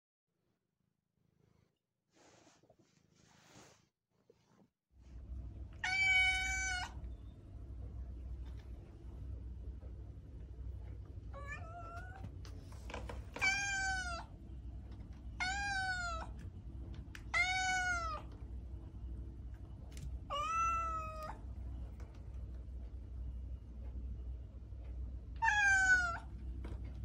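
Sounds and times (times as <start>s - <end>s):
cat meowing: 5.8s - 7.0s, 11.3s - 12.2s, 13.4s - 14.3s, 15.4s - 16.4s, 17.2s - 18.3s, 20.3s - 21.4s, 25.4s - 26.3s.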